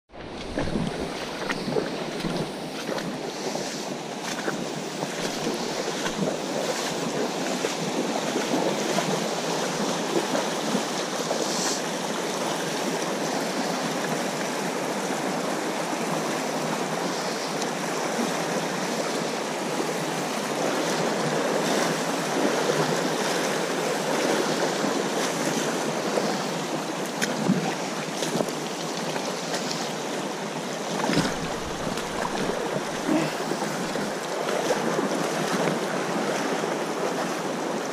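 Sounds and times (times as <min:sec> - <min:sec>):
boots splashing through water: 0:00.1 - 0:12.8, 0:20.9 - 0:29.8, 0:30.5 - 0:37.9
creek water rushing over gravel: 0:00.1 - 0:37.9.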